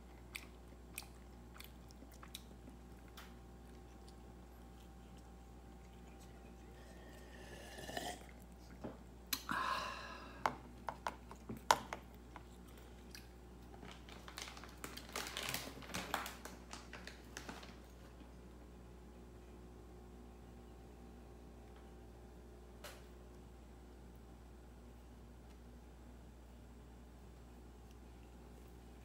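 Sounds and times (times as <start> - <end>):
cat licking and chewing: 0.0 - 7.6.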